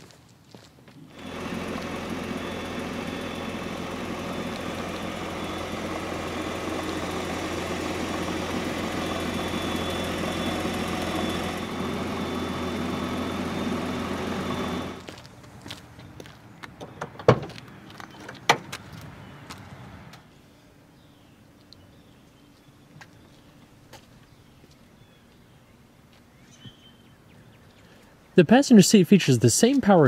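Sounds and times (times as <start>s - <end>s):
car engine idling: 1.1s - 20.9s.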